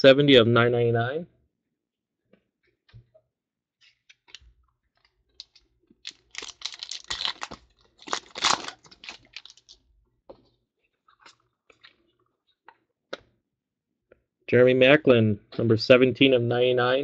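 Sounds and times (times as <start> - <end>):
foil wrapper tearing and crinkling: 5.4 - 9.8.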